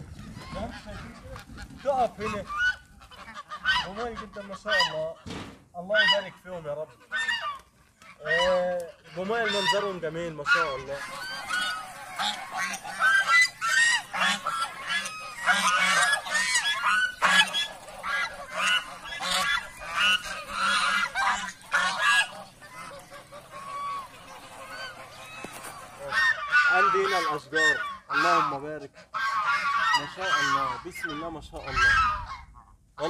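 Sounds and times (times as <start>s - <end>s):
geese honking: 0.0s - 33.0s.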